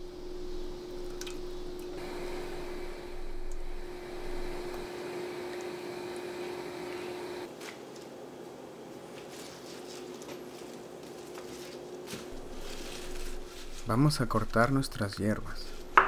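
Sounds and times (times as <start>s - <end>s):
steady hum: 0.0s - 7.5s.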